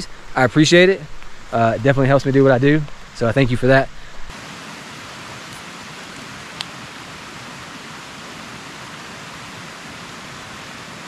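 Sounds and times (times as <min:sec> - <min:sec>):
stream water rushing: 0:04.3 - 0:11.0.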